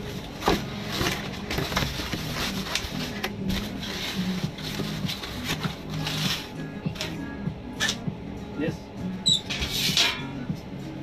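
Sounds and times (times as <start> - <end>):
cardboard creasing and rustling: 0.0 - 6.5.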